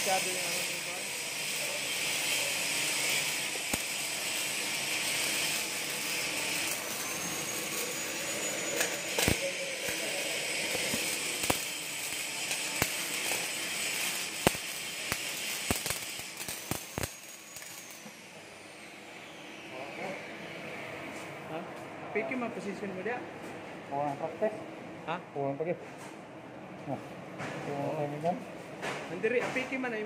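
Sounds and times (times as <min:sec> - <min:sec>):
welding arc hissing and popping: 0:00.0 - 0:18.3.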